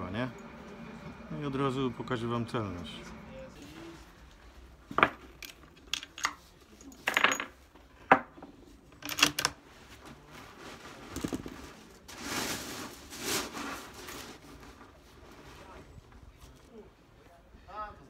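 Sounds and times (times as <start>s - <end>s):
rifle loading metallic clicks: 9.0s - 9.6s.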